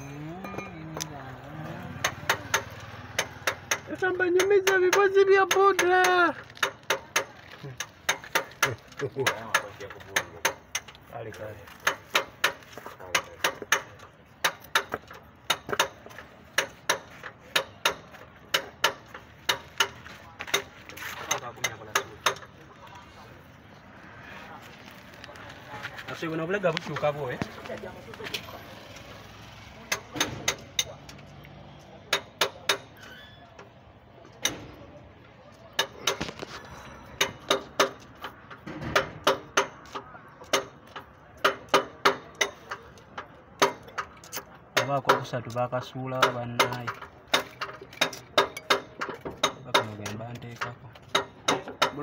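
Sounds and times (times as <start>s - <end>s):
sharp rhythmic clicks: 2.0s - 11.0s.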